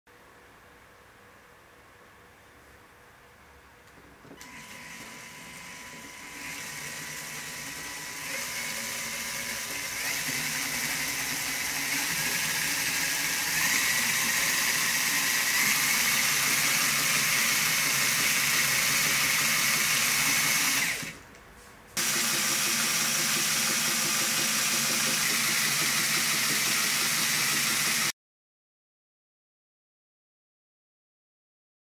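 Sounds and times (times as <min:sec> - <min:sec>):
small electric motor whirring: 0:04.4 - 0:21.2, 0:22.0 - 0:28.1.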